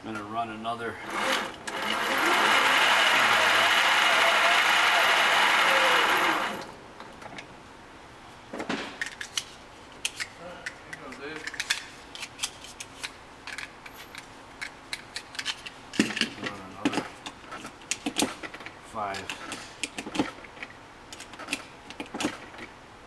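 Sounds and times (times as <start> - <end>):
metallic clicks loading cartridges: 9.0 - 16.3.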